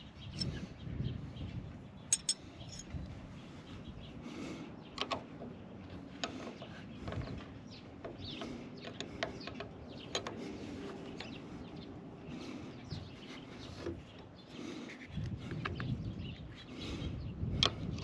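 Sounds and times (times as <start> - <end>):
birds chirping: 0.0 - 18.0
wrenches clicking on a bolt: 2.1 - 2.8, 8.4 - 10.4.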